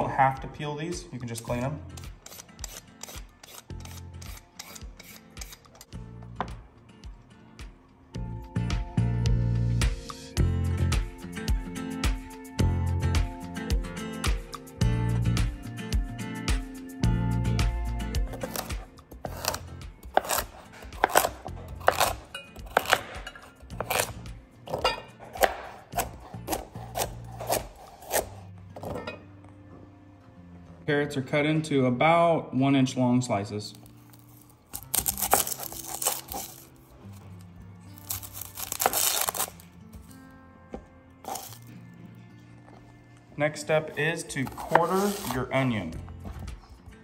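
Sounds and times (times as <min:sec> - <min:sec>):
background music: 0:00.0 - 0:47.0
onion skin crinkling: 0:18.4 - 0:23.1, 0:33.7 - 0:39.7, 0:41.2 - 0:41.7, 0:44.4 - 0:45.5
knife chopping on plastic board: 0:18.4 - 0:29.0, 0:44.4 - 0:45.3.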